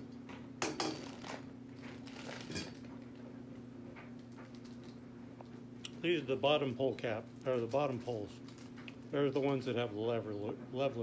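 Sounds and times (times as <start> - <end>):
steady low hum: 0.0 - 11.0
plastic packaging crinkling: 1.1 - 3.1, 4.2 - 5.0, 7.0 - 9.6.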